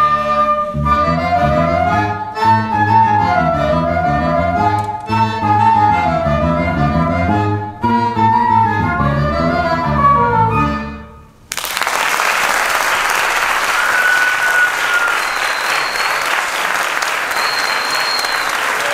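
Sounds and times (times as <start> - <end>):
electric bass: 0.0 - 11.2
flute: 0.0 - 11.4, 13.5 - 18.9
audience applause: 11.5 - 18.9
short high whistles: 13.6 - 18.9.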